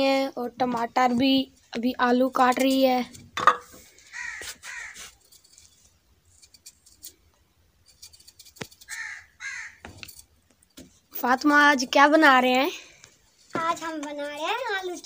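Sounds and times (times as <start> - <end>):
crow cawing: 4.0 - 5.1, 8.9 - 9.9.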